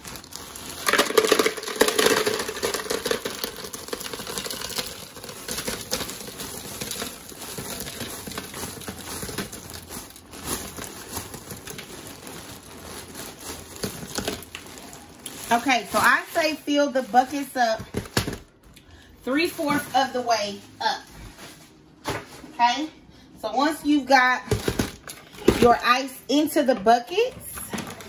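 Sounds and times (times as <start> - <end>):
ice cubes clattering on plastic: 0.0 - 18.5, 24.5 - 25.8, 27.4 - 28.0
plastic bag crinkling: 0.0 - 18.6.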